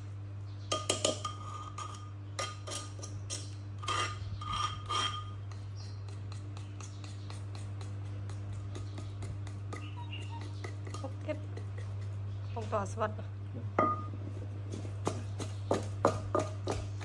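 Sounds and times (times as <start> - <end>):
steady low hum: 0.0 - 17.0
metal spoon scraping bowl: 0.7 - 7.6, 8.9 - 12.4
pestle pounding in mortar: 4.4 - 12.2, 13.7 - 17.0.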